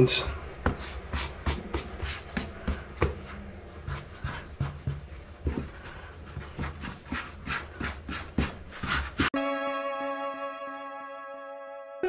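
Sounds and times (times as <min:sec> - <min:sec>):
hands patting dough on wooden board: 0:00.3 - 0:09.3.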